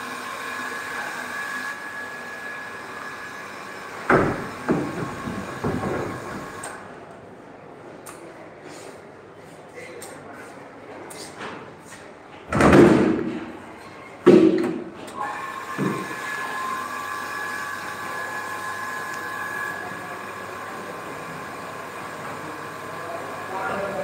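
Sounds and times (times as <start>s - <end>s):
water purifier pump humming: 0.0s - 6.8s, 15.2s - 24.0s.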